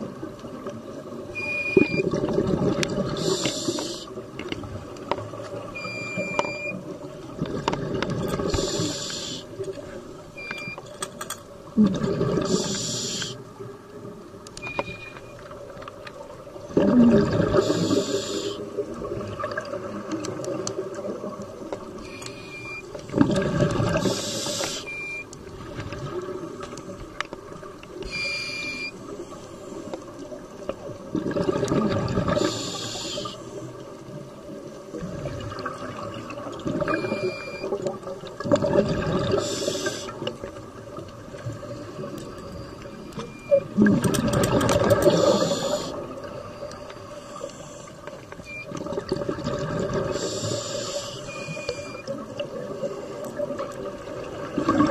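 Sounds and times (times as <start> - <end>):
water burbling: 0.0 - 10.8, 11.6 - 28.9, 30.1 - 33.4, 34.0 - 46.7, 48.2 - 54.9
bubbles rushing underwater: 1.8 - 3.5, 7.3 - 8.7, 11.8 - 12.8, 16.6 - 18.0, 23.1 - 24.2, 30.8 - 32.5, 34.9 - 39.5, 43.6 - 46.2, 48.7 - 50.3, 52.1 - 54.9.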